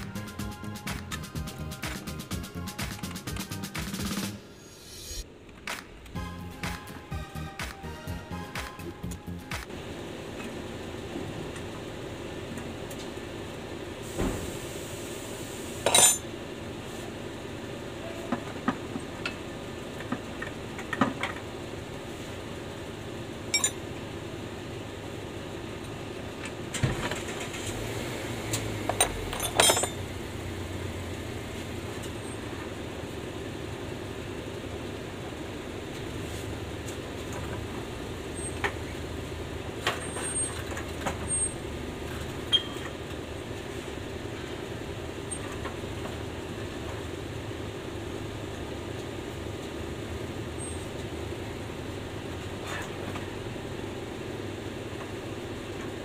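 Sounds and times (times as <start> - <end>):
hand tools clinking on steel: 15.8 - 16.2, 23.5 - 23.8, 28.9 - 30.0.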